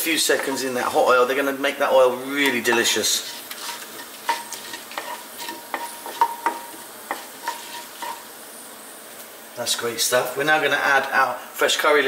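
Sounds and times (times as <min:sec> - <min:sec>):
wooden spoon stirring in pan: 0:00.0 - 0:09.1
spices sizzling in oil: 0:00.0 - 0:11.2.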